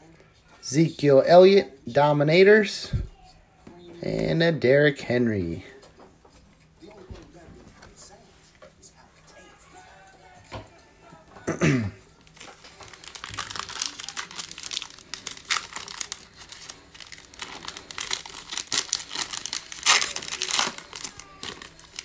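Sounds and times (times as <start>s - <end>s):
foil wrapper tearing and crinkling: 12.3s - 22.0s.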